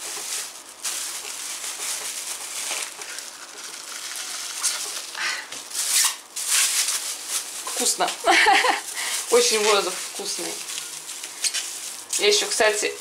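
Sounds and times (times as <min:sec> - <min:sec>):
plastic bag crinkling and hissing: 0:00.0 - 0:13.0.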